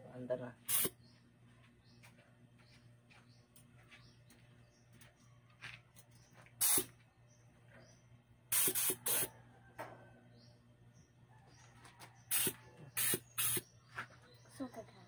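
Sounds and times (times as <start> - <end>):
compressed air blasts: 0.7 - 1.0, 6.6 - 7.0, 8.5 - 9.3, 12.3 - 13.7
air compressor humming: 0.7 - 1.1, 6.6 - 7.0, 8.5 - 9.3, 12.2 - 13.7.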